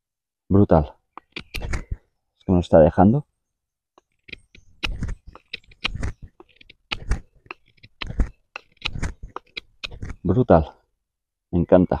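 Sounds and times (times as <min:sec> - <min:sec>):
knife carving wooden stick: 0:01.1 - 0:02.0, 0:04.0 - 0:10.4.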